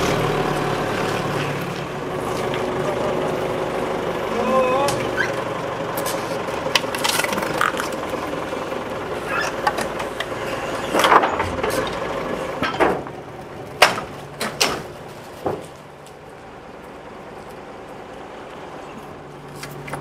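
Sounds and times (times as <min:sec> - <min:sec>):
forklift engine running: 0:00.0 - 0:20.0
knocks and clatter: 0:09.6 - 0:13.2, 0:13.8 - 0:15.9.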